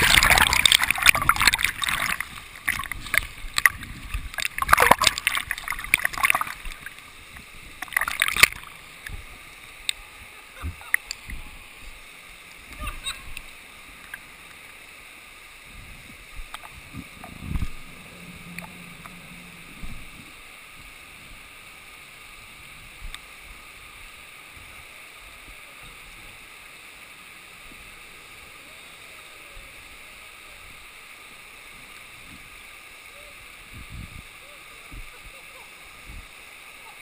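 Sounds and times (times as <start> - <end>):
water sloshing against camera: 0.0 - 11.5
water rushing over rocks: 0.0 - 37.0.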